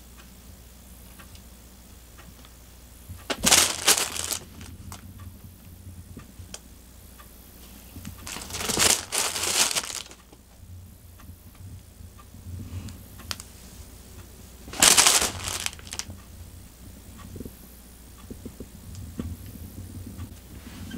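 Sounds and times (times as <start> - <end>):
fabric cat tunnel rustling: 3.3 - 5.0, 8.2 - 10.2, 14.6 - 16.1.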